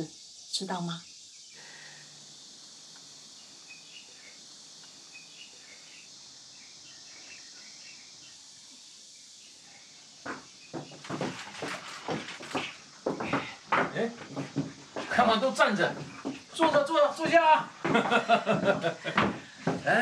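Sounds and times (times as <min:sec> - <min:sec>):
high insect hum: 0:00.0 - 0:20.0
sharp knocks: 0:10.3 - 0:15.2.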